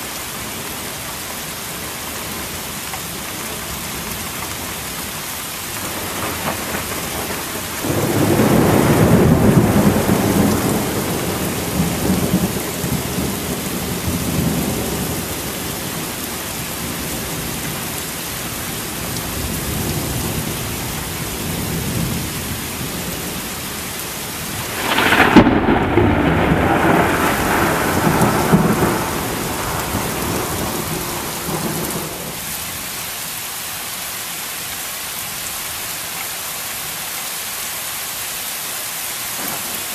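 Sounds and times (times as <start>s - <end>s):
heavy rain: 0.0s - 39.9s
thunder rumbling: 5.8s - 16.2s, 24.3s - 32.4s
thunder crack: 6.0s - 13.3s, 24.5s - 32.2s.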